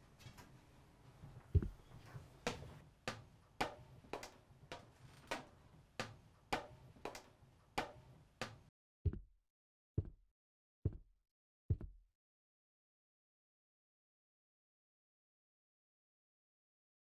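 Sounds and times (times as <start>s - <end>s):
footsteps climbing stairs: 1.5s - 1.8s.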